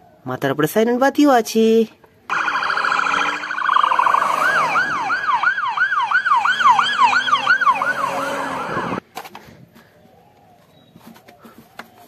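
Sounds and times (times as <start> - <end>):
police siren wailing and yelping: 2.3 - 9.0.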